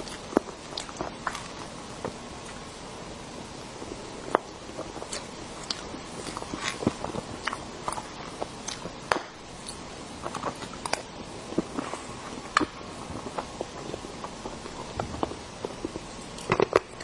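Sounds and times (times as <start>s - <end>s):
wet chewing mouth sounds: 0.0s - 1.6s.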